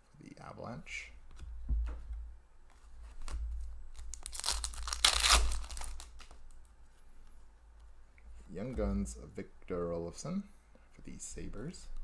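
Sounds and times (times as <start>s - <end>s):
plastic wrapper crinkling and tearing: 3.2s - 6.6s.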